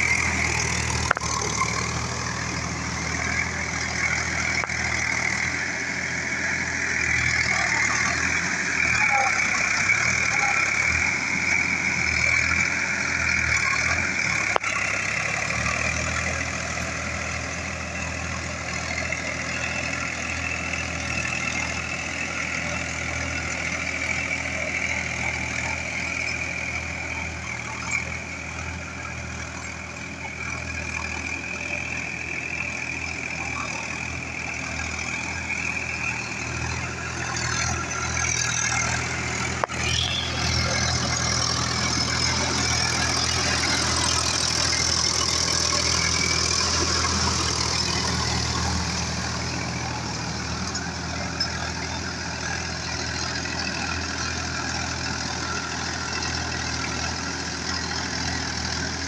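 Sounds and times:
tractor diesel engine under load: 0:00.0 - 0:59.0
high-pitched whine: 0:21.5 - 0:54.8.

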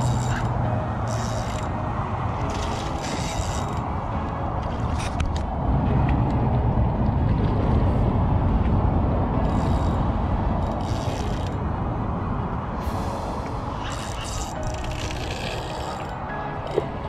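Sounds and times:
spinning reel rasping: 0:00.0 - 0:01.7, 0:02.5 - 0:03.8, 0:09.4 - 0:11.6, 0:13.8 - 0:16.8
wind rumbling on microphone: 0:00.0 - 0:17.0.

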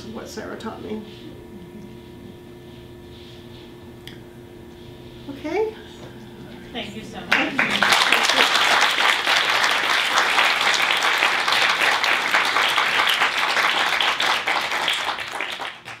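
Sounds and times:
audience applauding: 0:07.3 - 0:16.0.

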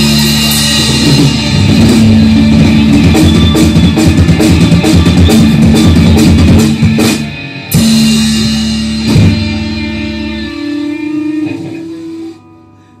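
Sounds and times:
rock band playing: 0:00.0 - 0:12.9
guitar chords ringing: 0:00.0 - 0:13.0.

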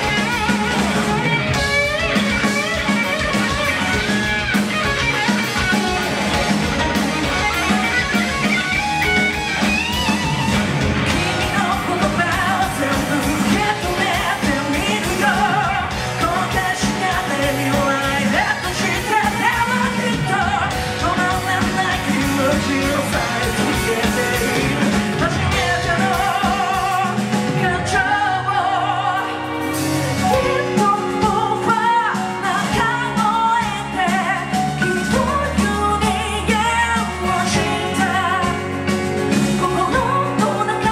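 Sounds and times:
live rock band: 0:00.0 - 0:40.9
male lead vocal: 0:11.1 - 0:40.9.

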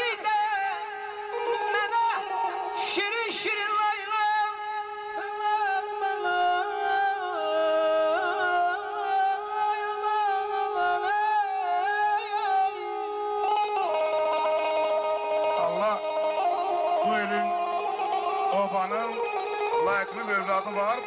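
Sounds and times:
man singing ornamented melody: 0:00.0 - 0:21.0
electric guitar: 0:10.2 - 0:21.0.

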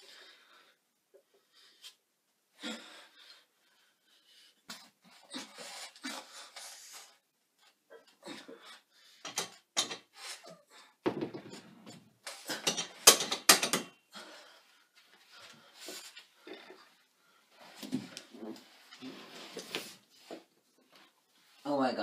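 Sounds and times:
barbell knocking on bench: 0:11.0 - 0:11.6.

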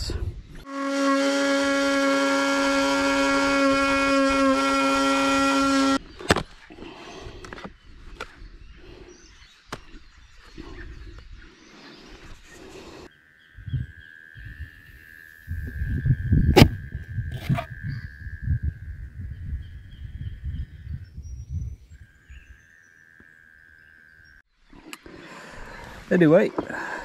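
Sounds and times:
power tool whining: 0:00.7 - 0:06.0.

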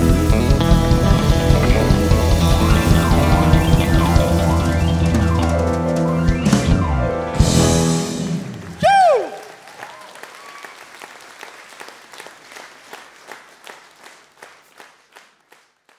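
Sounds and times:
live band closing chord: 0:00.0 - 0:08.8
audience applauding: 0:07.9 - 0:15.9.

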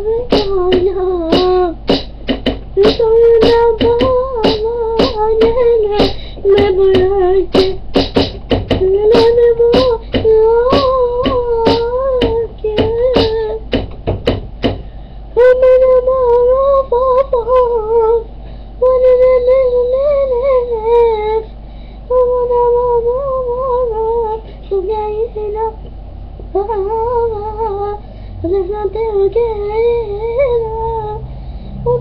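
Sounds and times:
person humming wordless tune: 0:00.0 - 0:14.8, 0:26.5 - 0:32.0
beatboxing clicks and pops: 0:00.3 - 0:14.9.

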